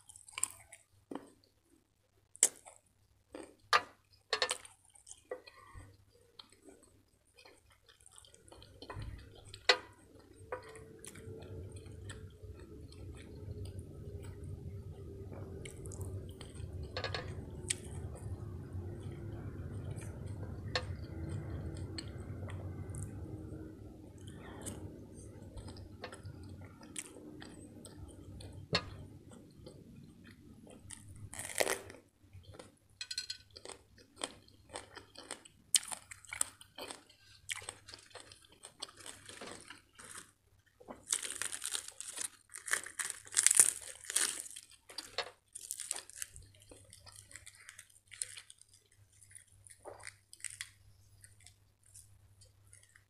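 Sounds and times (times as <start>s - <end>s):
person chewing wet food: 2.3s - 32.8s, 33.5s - 53.0s
lettuce crunching: 7.4s - 32.8s, 33.5s - 53.0s.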